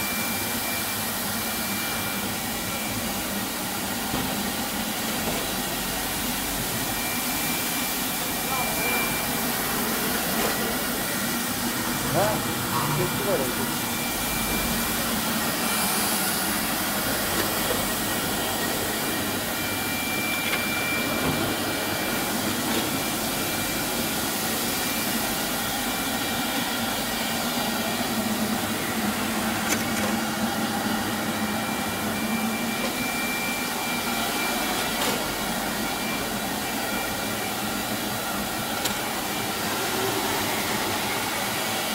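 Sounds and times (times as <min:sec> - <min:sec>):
carpet washing machine whirring: 0:00.0 - 0:41.9
faint high whine: 0:06.4 - 0:16.7.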